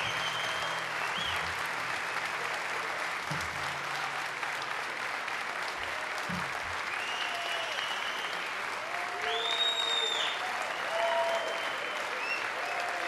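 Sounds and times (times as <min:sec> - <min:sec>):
whistles from audience: 0:00.0 - 0:02.2, 0:06.3 - 0:13.0
audience applauding: 0:00.0 - 0:13.0.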